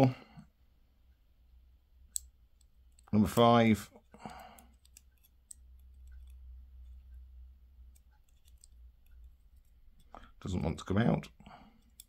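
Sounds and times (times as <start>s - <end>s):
small metal clicks and taps: 2.1s - 3.1s, 4.1s - 7.2s, 7.8s - 10.3s, 11.8s - 12.0s.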